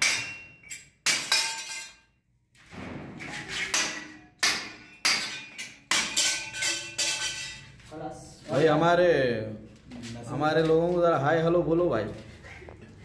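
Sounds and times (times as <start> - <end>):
hammer striking masonry wall: 0.0 - 2.0, 2.7 - 7.5.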